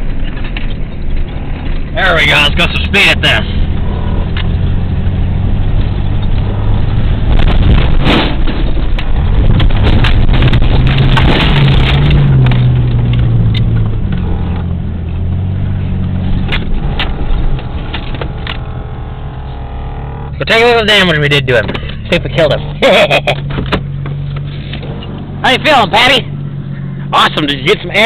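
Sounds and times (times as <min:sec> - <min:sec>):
vehicle knocks and rattles: 0:00.0 - 0:02.3, 0:05.7 - 0:20.5, 0:21.5 - 0:25.3
engine accelerating: 0:00.4 - 0:28.0.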